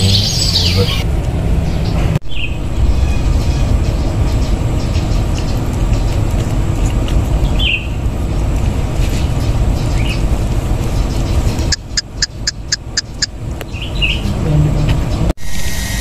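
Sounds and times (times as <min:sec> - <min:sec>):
bird chirping: 0:00.0 - 0:01.0, 0:07.4 - 0:08.4, 0:09.0 - 0:15.2
low rumbling noise: 0:00.0 - 0:15.4.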